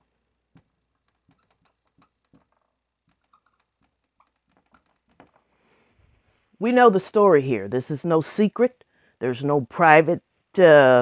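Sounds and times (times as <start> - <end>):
marker writing on whiteboard: 0.6 - 5.5.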